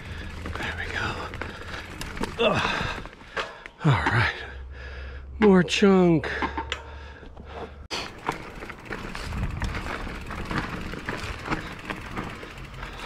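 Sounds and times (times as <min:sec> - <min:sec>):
bicycle tyre and wind rush: 0:00.0 - 0:03.4, 0:08.0 - 0:13.0
bike knocking and rattling on rocks: 0:00.0 - 0:04.4, 0:08.0 - 0:13.0.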